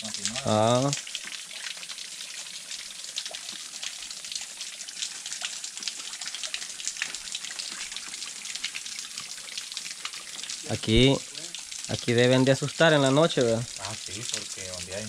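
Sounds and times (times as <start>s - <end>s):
steady watery hiss: 0.0s - 15.0s
water drops dripping: 0.0s - 15.0s.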